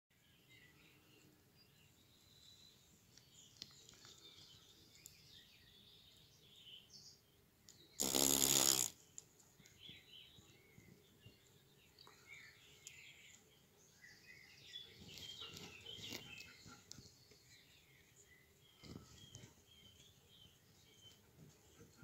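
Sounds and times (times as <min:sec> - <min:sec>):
faint bird chirps: 0:00.2 - 0:22.0
beetle wings buzzing: 0:08.0 - 0:08.9.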